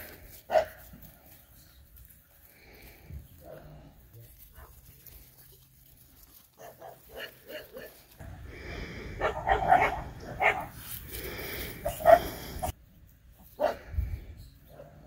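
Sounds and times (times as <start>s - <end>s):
puppies barking and yipping: 6.5s - 8.2s, 9.0s - 12.7s.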